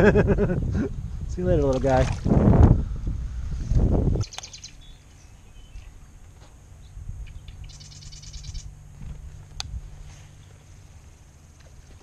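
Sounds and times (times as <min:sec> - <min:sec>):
low rumble of wind: 0:00.0 - 0:12.0
sharp click: 0:04.2 - 0:04.6
bird rattling trill: 0:04.2 - 0:05.9, 0:07.2 - 0:08.8.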